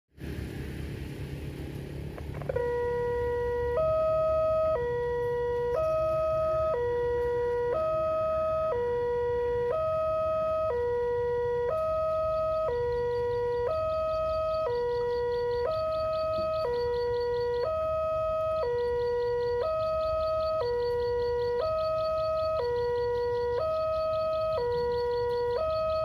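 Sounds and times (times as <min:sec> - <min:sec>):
low background rumble: 0:00.2 - 0:25.6
level crossing two-tone alarm: 0:02.5 - 0:26.0.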